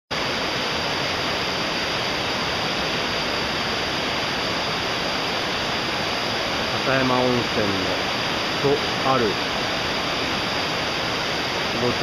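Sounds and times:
river rushing over rocks: 0:00.1 - 0:12.0.

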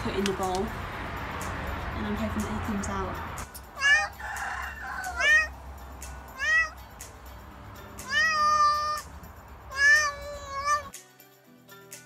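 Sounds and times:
cat meowing: 0:03.8 - 0:04.2, 0:05.0 - 0:05.5, 0:06.3 - 0:06.8, 0:08.0 - 0:09.1, 0:09.7 - 0:11.0.

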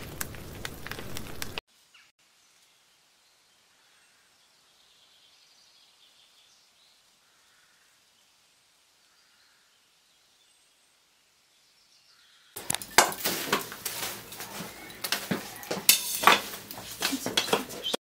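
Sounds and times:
metal and wood clattering: 0:12.6 - 0:18.0.

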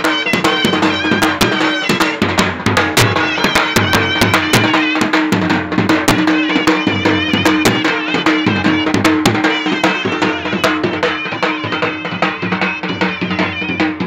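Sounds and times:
high wavering melody: 0:00.0 - 0:05.2, 0:06.3 - 0:14.0
fast folk drum strokes: 0:00.0 - 0:14.0.

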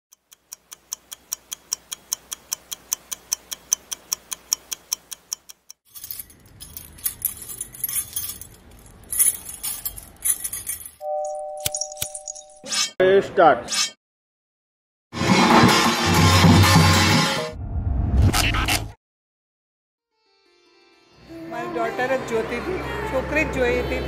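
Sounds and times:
fast clock ticking: 0:00.1 - 0:05.8
metallic jingling: 0:05.9 - 0:12.7.

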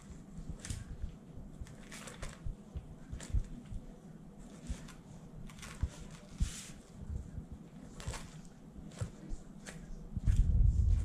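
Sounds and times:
newspaper rustling: 0:01.6 - 0:03.7, 0:04.4 - 0:06.9, 0:07.7 - 0:10.4.

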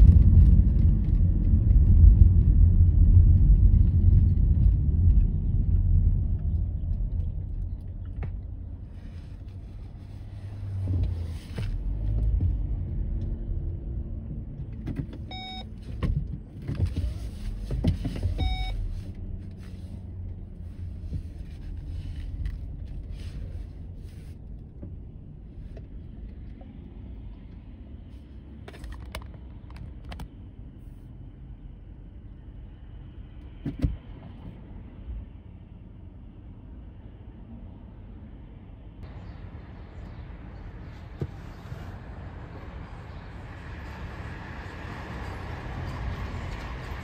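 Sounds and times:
car engine and tyre rumble: 0:00.0 - 0:47.0
short beeps: 0:15.3 - 0:15.7, 0:18.4 - 0:18.8.

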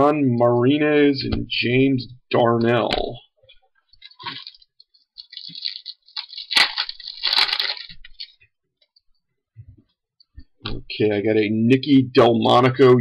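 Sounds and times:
wrapper crinkling: 0:04.0 - 0:08.5.

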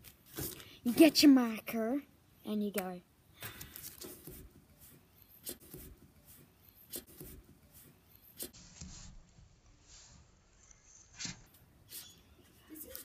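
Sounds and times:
marker scratching on tape: 0:03.9 - 0:09.1.

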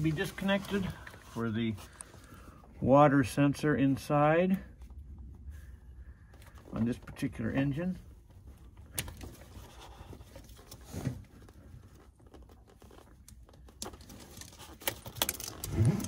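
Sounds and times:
gloved hands rustling: 0:00.0 - 0:02.6.

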